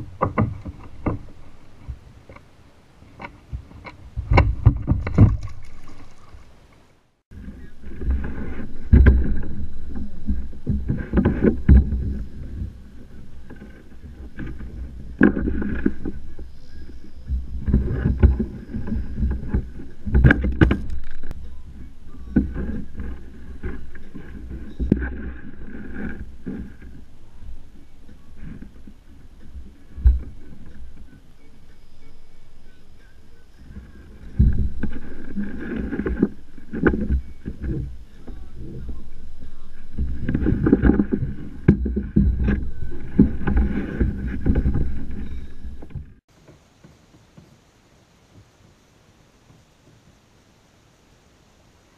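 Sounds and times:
low rumble: 0:07.3 - 0:46.3.

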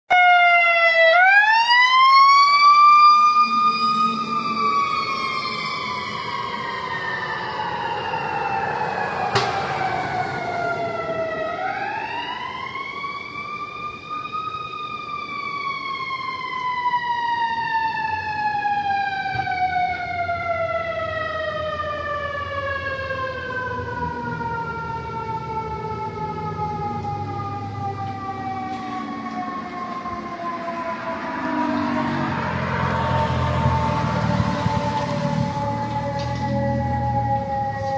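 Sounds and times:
fire engine siren wailing: 0:00.1 - 0:37.9.

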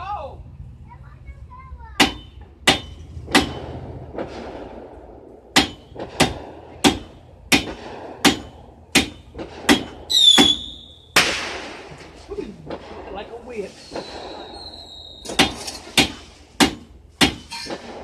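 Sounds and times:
firework bangs: 0:02.8 - 0:18.0
firework whistle: 0:10.1 - 0:11.2, 0:13.8 - 0:15.4.

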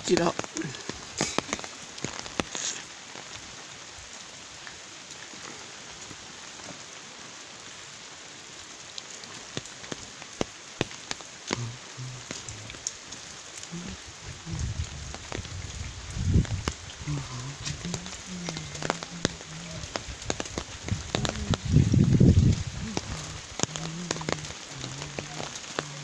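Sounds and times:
steady rain on foliage: 0:00.0 - 0:26.0
low rumble: 0:13.8 - 0:25.4.

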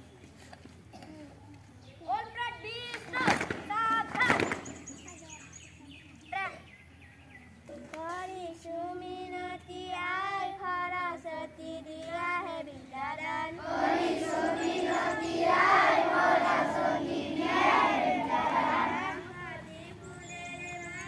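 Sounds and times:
child singing alone: 0:07.8 - 0:21.0
children singing together: 0:09.2 - 0:21.0.

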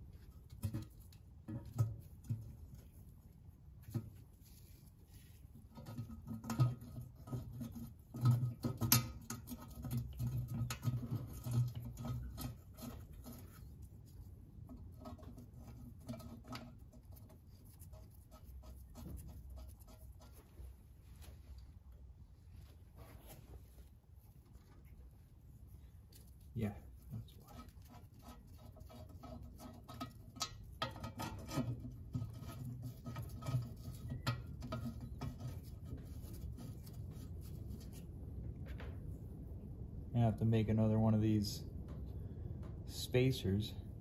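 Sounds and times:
clicks scrapes and metal knocks: 0:00.0 - 0:21.5, 0:26.0 - 0:39.1.

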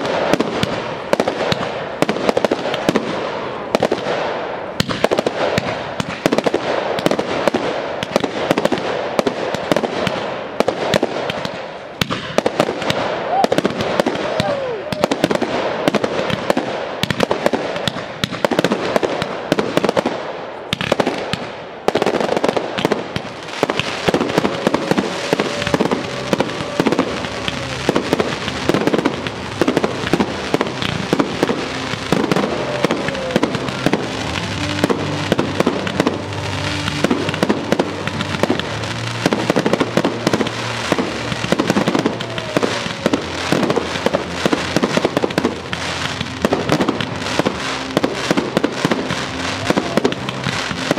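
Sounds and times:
fireworks bursting and crackling: 0:00.0 - 0:50.9
music playing: 0:23.3 - 0:50.9.

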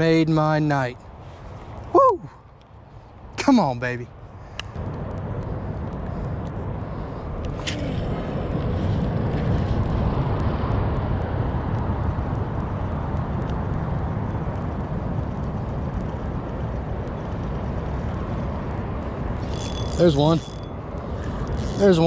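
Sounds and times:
low outdoor rumble: 0:00.0 - 0:22.0
faint regular ticking: 0:10.3 - 0:22.0.

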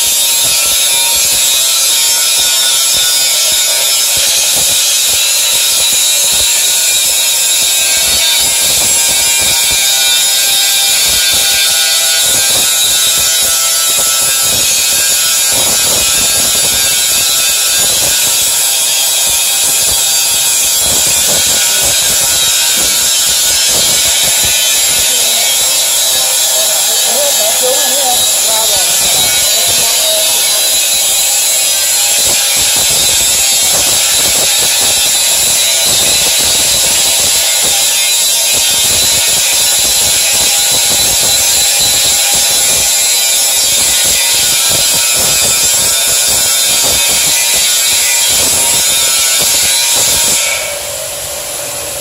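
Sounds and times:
angle grinder cutting steel: 0:00.0 - 0:52.0.

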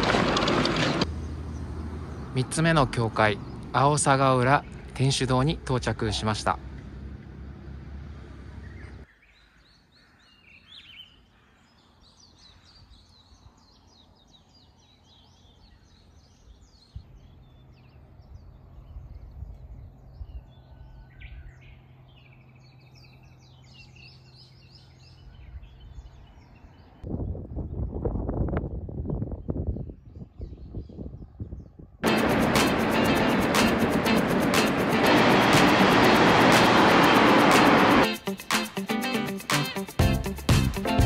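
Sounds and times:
songbirds chirping and singing: 0:08.5 - 0:27.4.

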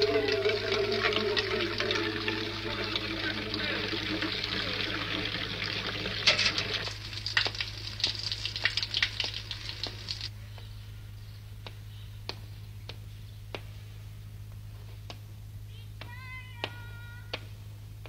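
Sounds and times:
water splashing into bucket: 0:00.0 - 0:10.3
faint footsteps: 0:09.1 - 0:18.0.

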